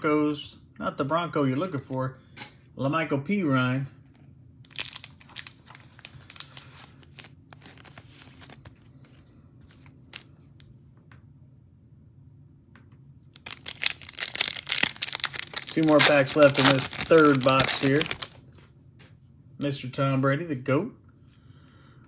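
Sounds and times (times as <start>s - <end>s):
foil wrapper crinkling and tearing: 4.7s - 8.6s, 13.4s - 18.4s
cards shuffled by hand: 4.7s - 10.5s, 13.4s - 18.4s.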